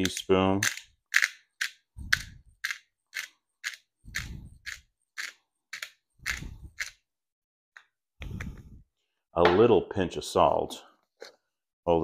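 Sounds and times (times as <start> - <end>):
pepper grinder clicking: 0.0 - 7.0.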